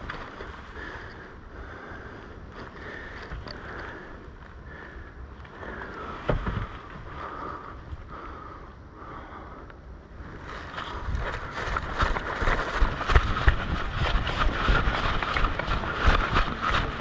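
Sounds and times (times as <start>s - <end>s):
wind rumbling on microphone: 0.0s - 17.0s
rustling movement: 5.4s - 8.2s, 10.2s - 17.0s
quick thuds of steps: 6.2s - 6.9s, 10.9s - 17.0s.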